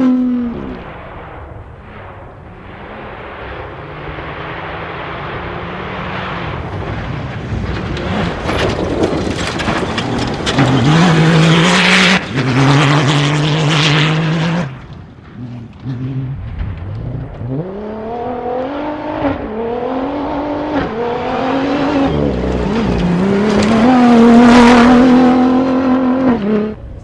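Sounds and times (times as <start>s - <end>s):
rally car engine approaching: 0.0s - 27.0s
tyres on gravel: 6.4s - 18.8s, 21.8s - 25.7s.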